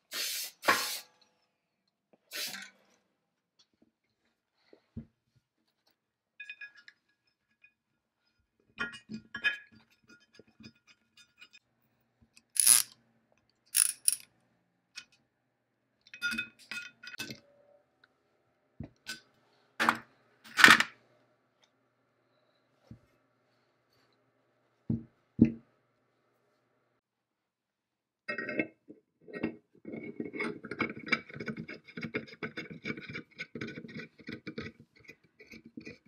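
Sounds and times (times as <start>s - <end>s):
metallic clinks and clicks: 13.8s - 14.3s.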